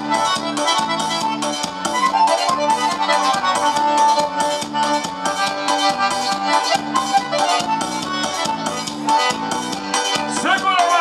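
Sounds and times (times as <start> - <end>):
accordion melody: 0.0 - 11.0
dance band music over speakers: 0.0 - 11.0.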